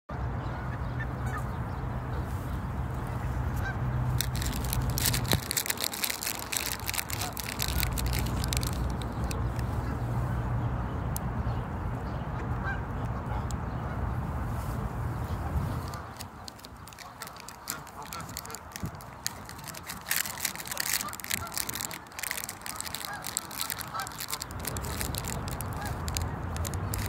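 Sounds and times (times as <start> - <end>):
geese calling: 3.3 - 10.0, 15.8 - 27.0
sharp clicks and crackles: 4.1 - 9.8, 15.7 - 27.0.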